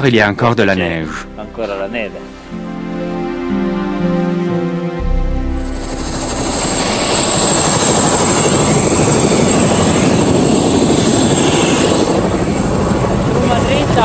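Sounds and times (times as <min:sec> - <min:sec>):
helicopter turbine whine: 0:00.9 - 0:14.0
helicopter rotor chopping: 0:05.0 - 0:14.0.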